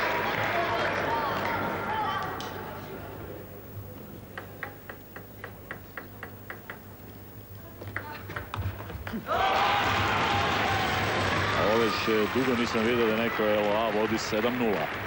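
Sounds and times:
table tennis ball bouncing: 0:04.3 - 0:06.8.

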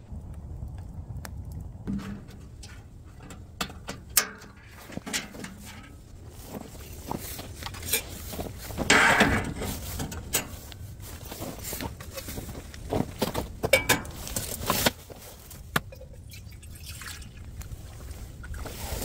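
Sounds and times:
steady low rumble: 0:00.0 - 0:14.7
metal clinks and knocks: 0:07.6 - 0:10.8, 0:13.6 - 0:14.8.

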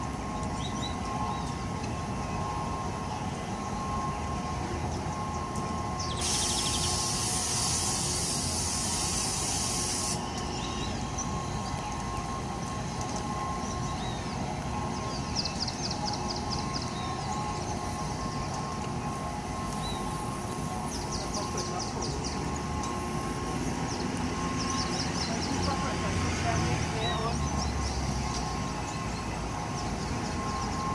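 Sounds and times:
ride machine hum and whine: 0:00.0 - 0:30.9
loud air hiss: 0:06.2 - 0:10.2.

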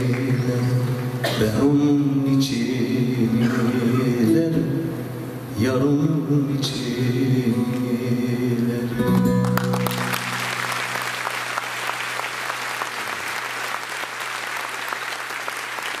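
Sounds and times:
audience clapping: 0:00.0 - 0:01.2, 0:09.0 - 0:16.0.

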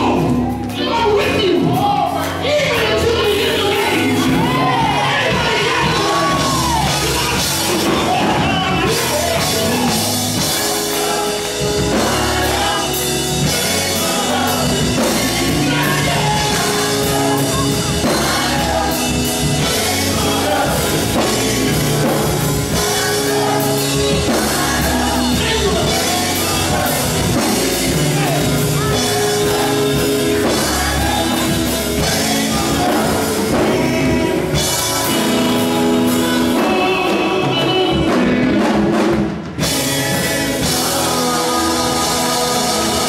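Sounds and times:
drum kit: 0:00.0 - 0:43.0
electric bass: 0:00.0 - 0:43.0
guitar: 0:00.0 - 0:43.0
man singing into a microphone: 0:12.1 - 0:43.0.

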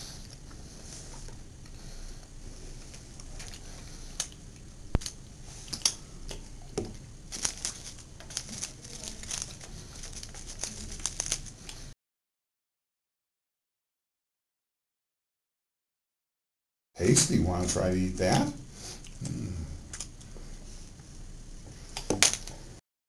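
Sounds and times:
plastic crinkling and rustling: 0:06.8 - 0:11.9.

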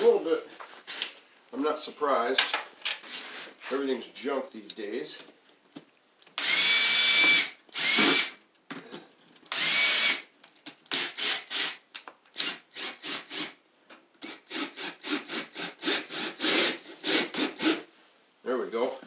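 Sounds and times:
cordless drill whining: 0:06.4 - 0:08.4, 0:09.5 - 0:10.3, 0:10.9 - 0:11.8, 0:12.4 - 0:13.6, 0:14.2 - 0:17.8.

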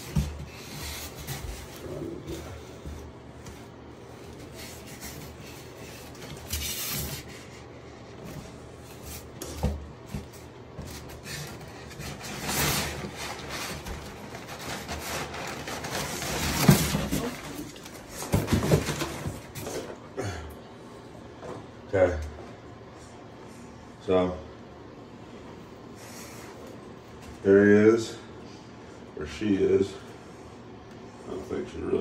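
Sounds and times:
cloth and cardboard rustling: 0:00.0 - 0:19.9.

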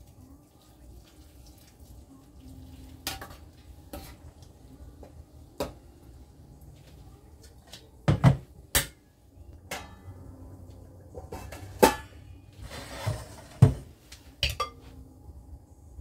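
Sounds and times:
metal cookware knocking: 0:09.7 - 0:10.2, 0:11.2 - 0:12.2, 0:14.4 - 0:14.8.

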